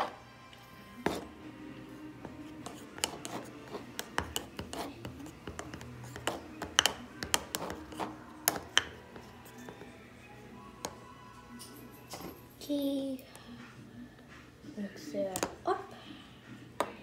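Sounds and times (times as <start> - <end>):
spoon stirring gooey mixture: 0.0 - 12.0
background music: 0.0 - 17.0.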